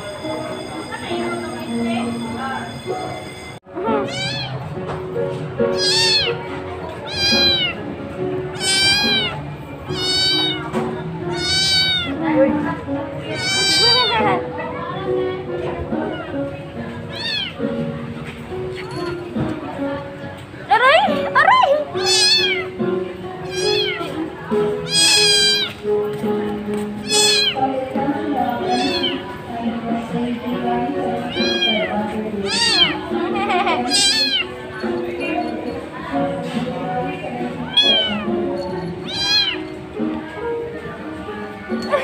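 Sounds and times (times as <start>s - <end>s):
kitten meowing: 3.9s - 4.7s, 5.7s - 7.8s, 8.5s - 12.2s, 13.2s - 14.3s, 17.1s - 17.6s, 21.9s - 22.8s, 23.4s - 24.2s, 24.8s - 25.8s, 27.0s - 27.7s, 28.6s - 29.4s, 31.2s - 33.2s, 33.8s - 34.6s, 37.6s - 38.3s, 39.0s - 39.7s.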